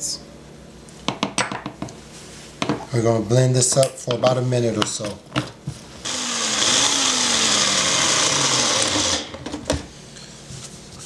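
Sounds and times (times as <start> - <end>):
blender motor whirring: 6.0 - 9.8.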